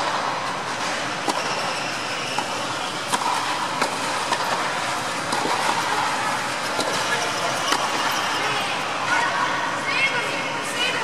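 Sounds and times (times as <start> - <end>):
rackets hitting tennis balls: 0.0 - 8.0
steady background noise: 0.0 - 11.0.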